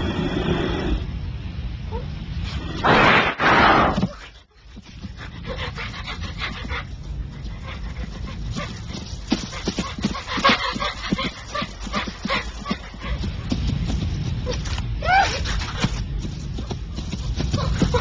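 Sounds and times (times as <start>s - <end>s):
low wind rumble: 0.0s - 18.0s
bear panting and huffing: 4.0s - 18.0s.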